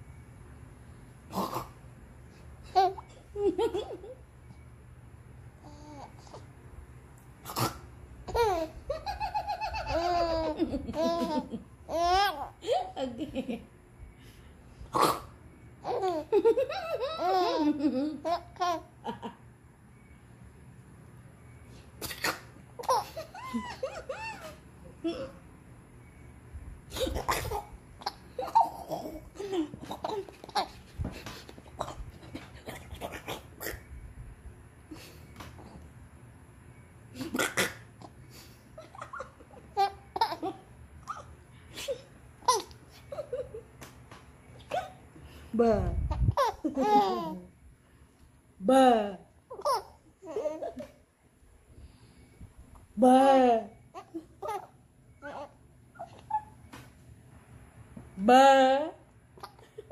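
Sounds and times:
baby laughing: 8.3s - 13.1s, 15.0s - 19.3s, 22.1s - 24.6s, 26.9s - 30.8s, 38.8s - 43.6s, 46.1s - 47.5s, 49.5s - 51.0s, 54.0s - 56.6s
baby squealing: 23.4s - 24.6s.

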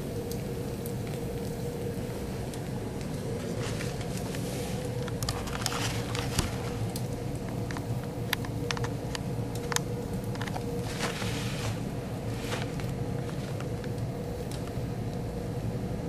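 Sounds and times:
faint steady hum: 0.0s - 16.0s
fire tornado low rumble: 0.0s - 16.0s
sharp clicks and crackles: 2.5s - 11.8s, 12.4s - 15.2s.

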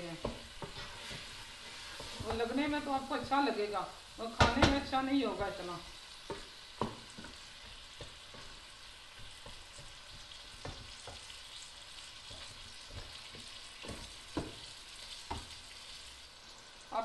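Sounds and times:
onions frying with sizzle: 0.0s - 17.0s
wooden spoon knocking on pot: 0.1s - 1.3s, 4.4s - 5.0s, 6.2s - 11.4s, 12.2s - 15.6s.

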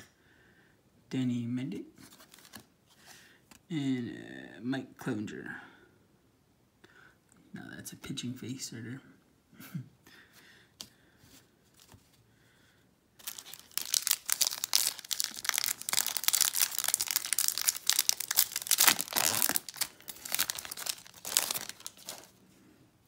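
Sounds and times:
foil wrapper crinkling and tearing: 13.2s - 22.4s.

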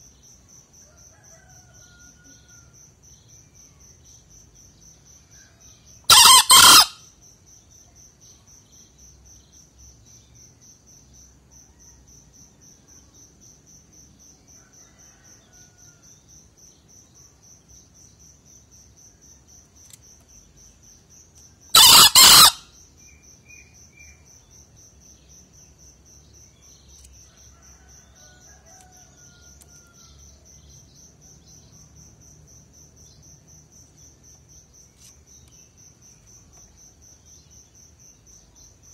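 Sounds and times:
crickets trilling: 0.0s - 38.9s
rooster crowing: 0.8s - 2.7s, 6.1s - 7.0s, 14.6s - 16.1s, 21.7s - 22.6s, 27.4s - 30.2s.

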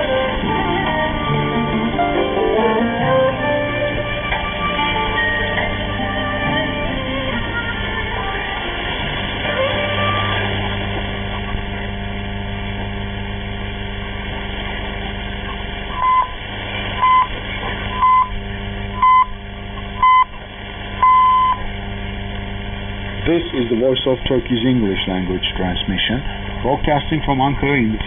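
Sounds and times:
radio static hiss and hum: 0.0s - 28.0s
time signal pips: 15.9s - 16.4s, 17.0s - 19.4s, 20.0s - 20.4s, 21.0s - 21.7s.

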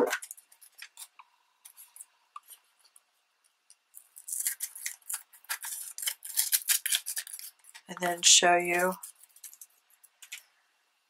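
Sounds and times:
scissors snipping paper: 4.1s - 7.9s.

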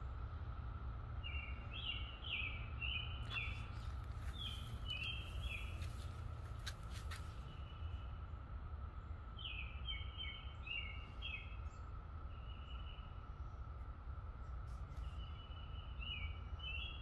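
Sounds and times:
cicadas droning: 0.0s - 17.0s
bird chirping: 1.2s - 6.4s, 9.4s - 13.7s, 14.8s - 17.0s.

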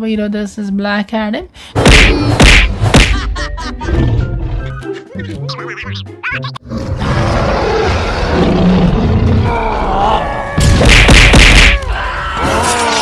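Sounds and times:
loud impact blast: 10.6s - 11.8s.

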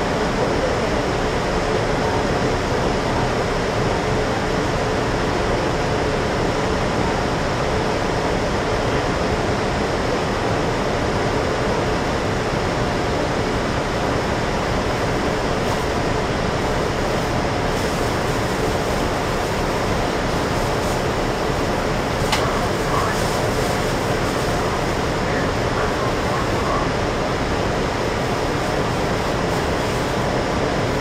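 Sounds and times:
air conditioning rushing: 0.0s - 31.0s
bus engine idling: 11.4s - 31.0s.

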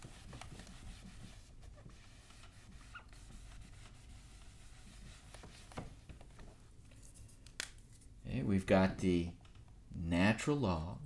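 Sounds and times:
cloth rubbing on whiteboard: 0.0s - 6.5s.

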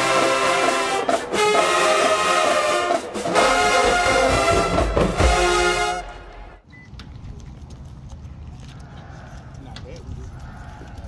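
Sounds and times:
marching band brass playing: 0.0s - 6.6s.

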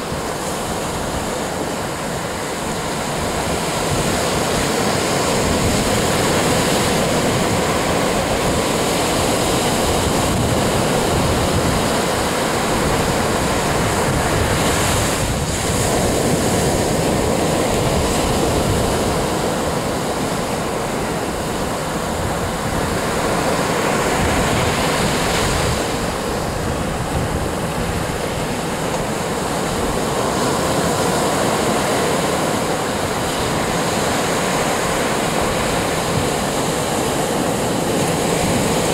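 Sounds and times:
surf washing on shore: 0.0s - 38.9s
wind buffeting microphone: 0.0s - 38.9s.

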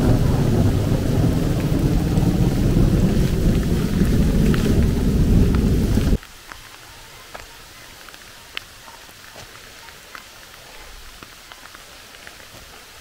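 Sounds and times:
thunder rumbling: 0.0s - 6.2s
heavy rain: 0.0s - 13.0s
raindrops ticking: 0.0s - 13.0s.

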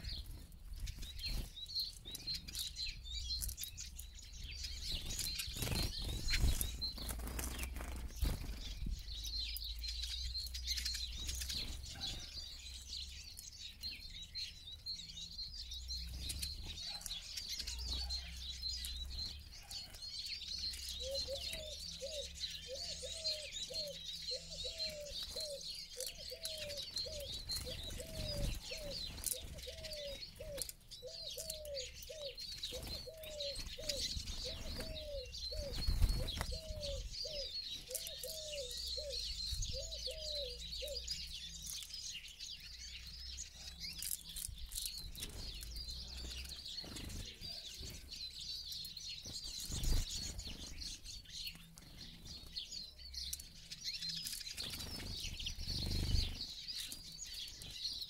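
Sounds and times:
birds twittering: 0.0s - 58.0s
bird low hooting call: 21.0s - 41.1s.

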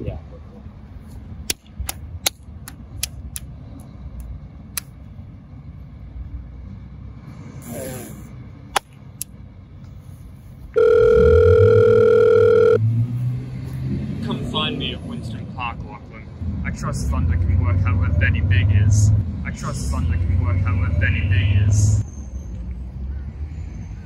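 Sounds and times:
low traffic rumble: 0.0s - 24.0s
mobile phone ringing: 10.8s - 12.8s.

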